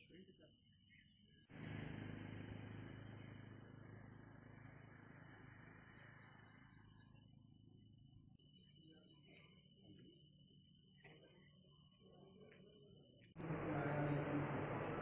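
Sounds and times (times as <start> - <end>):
faint outdoor ambience: 0.0 - 15.0
bird chirping: 4.4 - 15.0.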